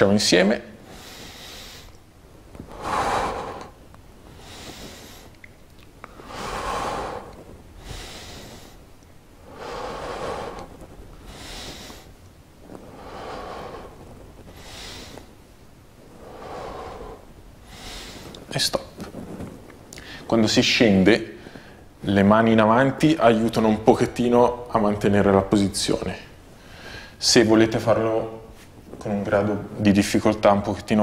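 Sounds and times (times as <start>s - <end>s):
man breathing hard: 0.8s - 2.0s, 2.6s - 5.4s, 6.1s - 15.4s, 16.1s - 18.5s, 26.6s - 27.2s.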